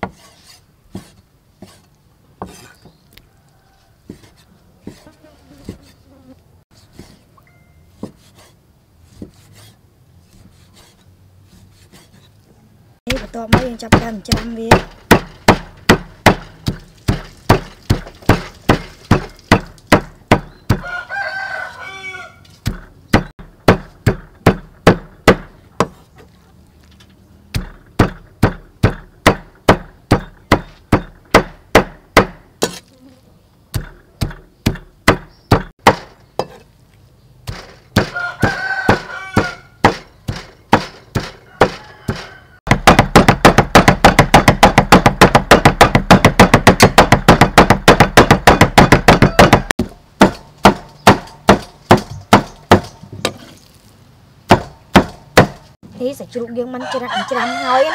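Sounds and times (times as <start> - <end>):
rooster crowing: 3.2 - 4.1, 20.8 - 22.5, 38.0 - 39.8, 41.4 - 42.7, 49.1 - 49.8, 56.8 - 57.9
knife chopping on wooden block: 27.5 - 32.8, 33.7 - 36.6, 37.4 - 53.4, 54.5 - 55.6.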